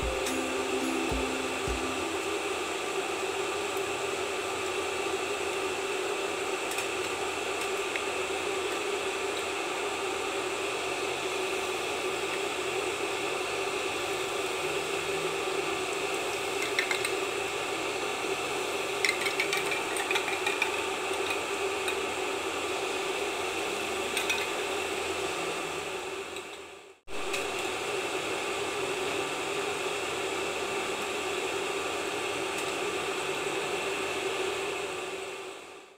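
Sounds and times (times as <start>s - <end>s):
faint hum: 0.0s - 4.5s.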